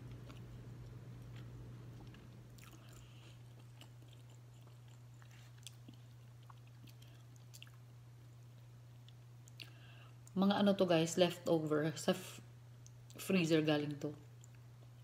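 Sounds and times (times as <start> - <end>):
small clicks of eating: 0.0 - 7.8, 8.5 - 10.4, 12.8 - 13.2, 14.2 - 15.0
faint chewing: 0.0 - 10.4, 14.2 - 15.0
steady low hum: 0.0 - 15.0.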